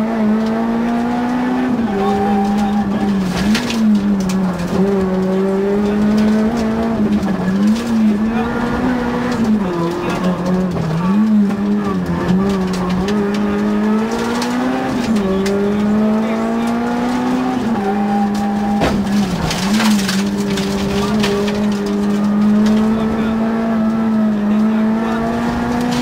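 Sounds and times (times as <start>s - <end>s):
car engine shifting gears: 0.0s - 26.0s
sharp clatter: 18.8s - 23.0s.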